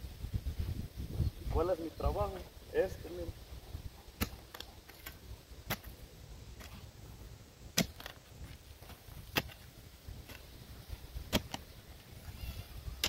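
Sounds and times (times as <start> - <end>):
spade chopping into turf: 4.2 - 6.0, 7.7 - 8.2, 8.8 - 10.4, 11.2 - 11.6.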